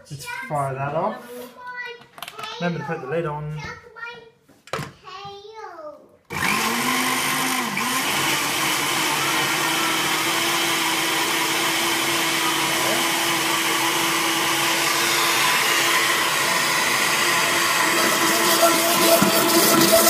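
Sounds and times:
blender motor running: 6.3 - 20.0.

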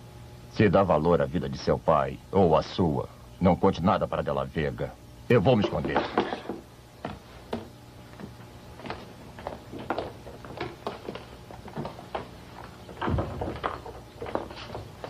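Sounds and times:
light footsteps on hard floor: 5.8 - 15.0.

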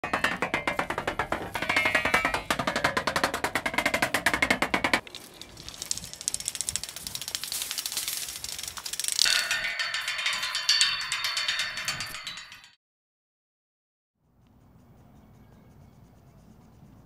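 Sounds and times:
stick clattering on corrugated iron: 0.0 - 5.0, 9.1 - 12.8
stick rattling along chain-link wire: 0.0 - 12.8
stick ringing on picket pales: 9.3 - 12.8.

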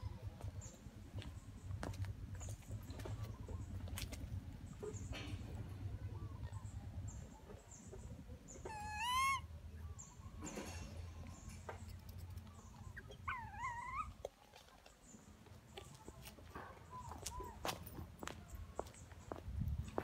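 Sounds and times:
low steady rumble: 0.0 - 14.2
infant monkey crying: 8.5 - 9.5, 12.8 - 14.1.

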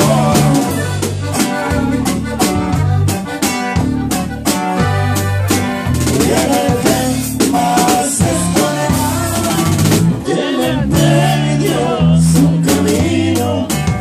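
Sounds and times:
bass notes: 0.0 - 14.0
button accordion melody: 0.0 - 14.0
drum kit beat: 0.0 - 14.0.

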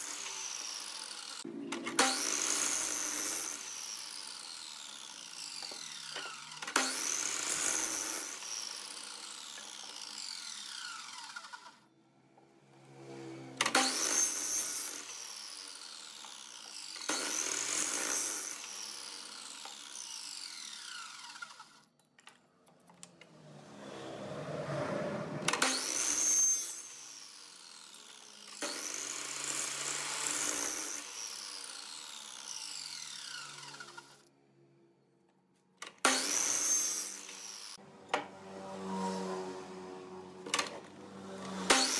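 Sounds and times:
mitre saw cutting wood: 0.0 - 21.9, 23.3 - 34.3, 35.8 - 41.9.

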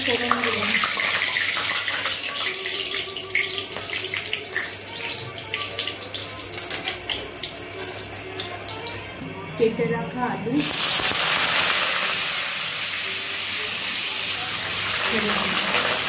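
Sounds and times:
leaves sizzling in hot oil: 0.0 - 5.1, 10.6 - 16.0.

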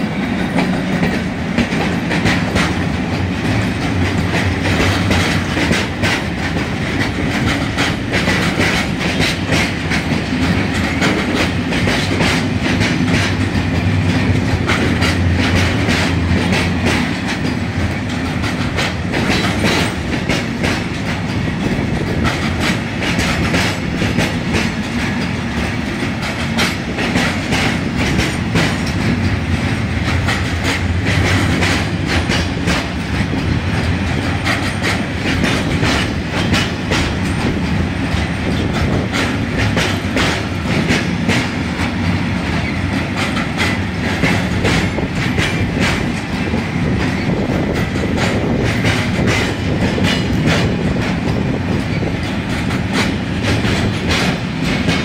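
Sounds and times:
freight train rumbling past: 0.0 - 55.0
wheels clacking over rail joints: 0.0 - 55.0.

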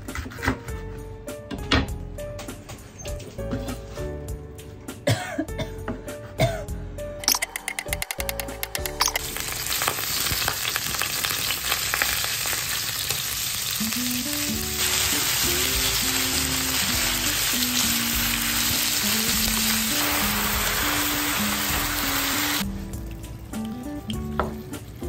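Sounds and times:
chopsticks clicking: 7.2 - 9.2
pork sizzling in frying pan: 7.2 - 25.0.

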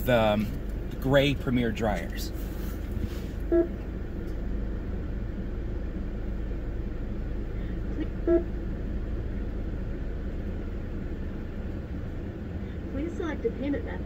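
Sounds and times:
car engine idling: 0.0 - 14.0
short beeps: 3.5 - 3.8, 7.9 - 8.6.

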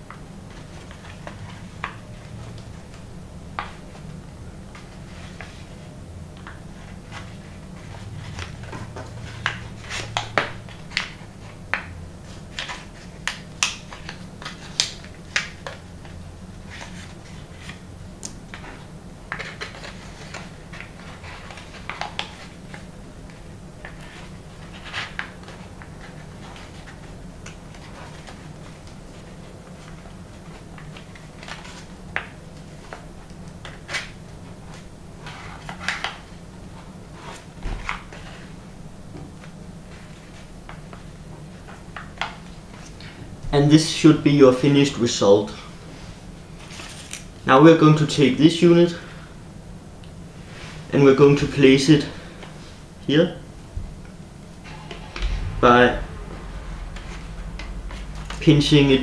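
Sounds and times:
steady low hum: 53.8 - 59.0.

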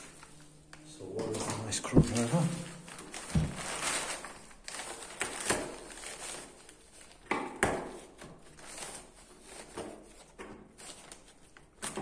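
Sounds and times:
wood knocking and cracking: 3.3 - 3.6.

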